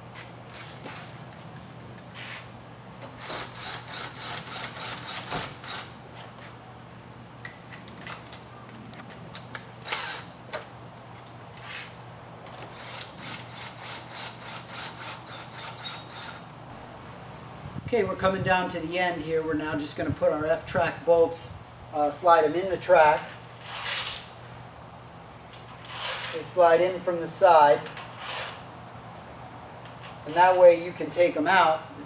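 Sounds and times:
drill rasping strokes: 3.2 - 5.9, 12.7 - 16.4
sharp drill clicks: 3.2 - 5.9, 9.8 - 10.3, 12.7 - 16.4, 28.0 - 28.6.

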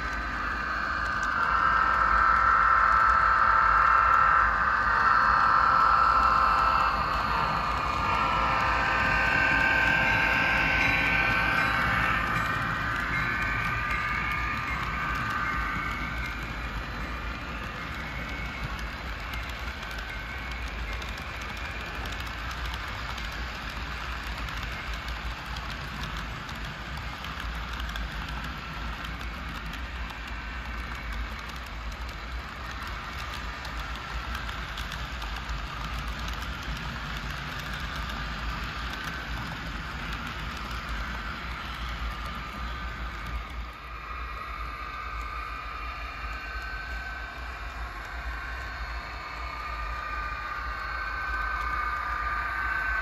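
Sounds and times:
model train cars rattling on track: 0.0 - 53.0.

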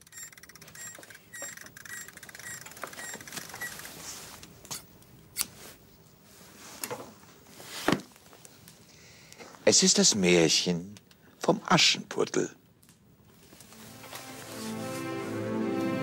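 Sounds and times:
faint high squeaks: 0.1 - 3.8
book being handled and opened: 6.4 - 8.5, 13.3 - 15.1.

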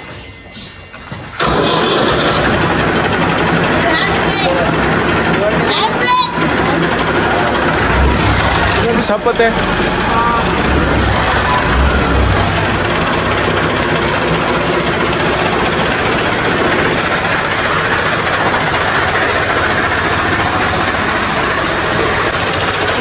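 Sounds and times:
tractor diesel engine idling: 1.4 - 23.0.

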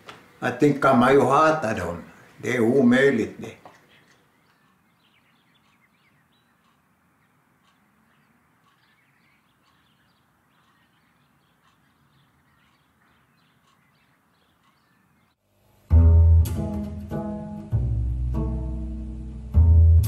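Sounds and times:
faint bird chirps: 3.7 - 15.4.

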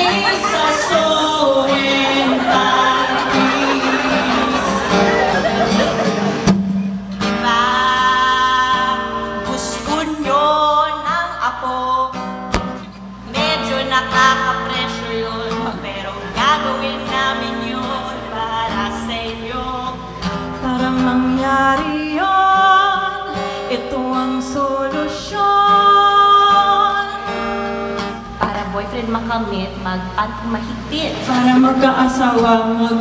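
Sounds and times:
women singing: 0.0 - 5.9, 13.3 - 20.0, 20.6 - 27.4, 30.9 - 33.0
acoustic guitar: 0.0 - 33.0.

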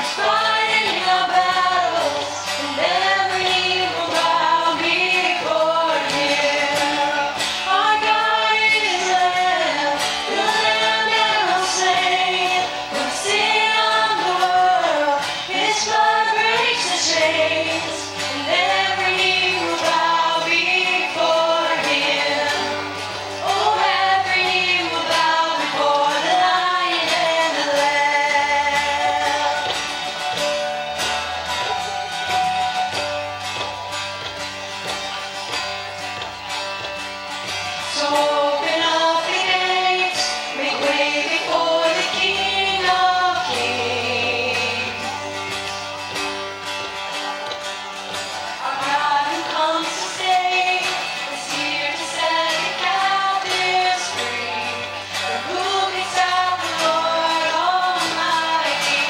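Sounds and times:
woman singing: 0.0 - 29.9, 37.8 - 45.2, 48.6 - 59.0
band playing: 0.0 - 59.0.

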